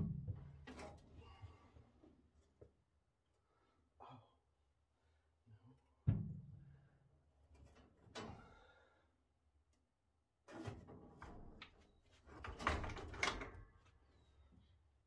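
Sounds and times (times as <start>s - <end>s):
metal clunks and scraping: 0.1s - 1.1s.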